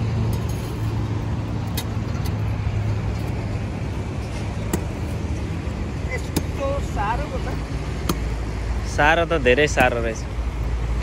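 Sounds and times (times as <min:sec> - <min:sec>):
spade striking hard soil: 0:04.2 - 0:05.3.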